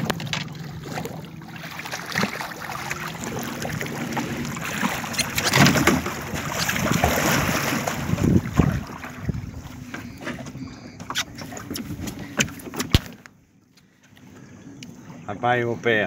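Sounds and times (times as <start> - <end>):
fish thrashing water splashing: 0.0 - 9.5
outboard motor idling: 0.0 - 13.1.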